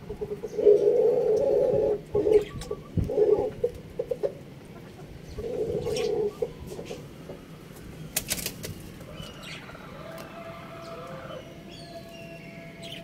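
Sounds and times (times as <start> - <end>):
chicken clucking: 0.1 - 7.4
wings flapping: 8.1 - 9.1.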